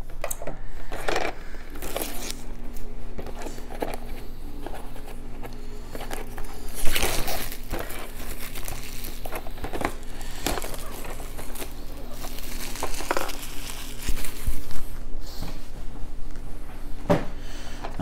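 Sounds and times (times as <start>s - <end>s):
cardboard box crinkling and rustling: 6.0s - 14.7s.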